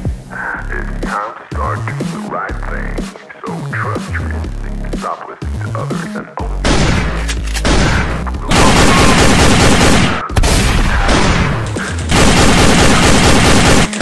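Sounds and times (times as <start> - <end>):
background music with bass: 0.0 - 14.0
automatic gunfire effects: 6.6 - 14.0.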